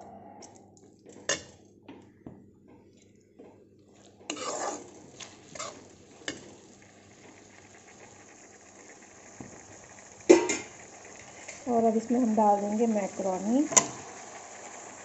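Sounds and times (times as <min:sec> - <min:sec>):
spatula scraping metal pan: 0:04.3 - 0:06.4.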